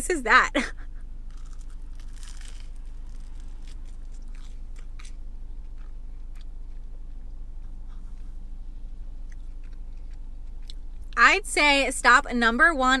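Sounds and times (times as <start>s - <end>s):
low hum: 0.0s - 13.0s
crunches of toast crust: 1.3s - 8.4s
person chewing: 1.3s - 11.2s.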